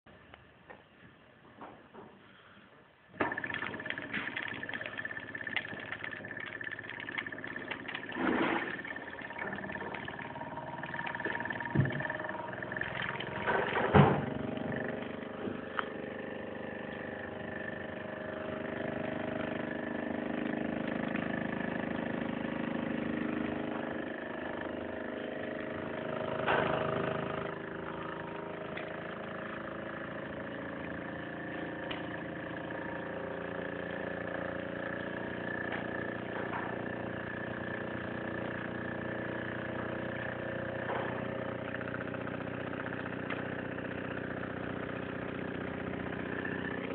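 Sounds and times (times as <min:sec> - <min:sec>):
toy steam engine chuffing: 0:03.2 - 0:22.3.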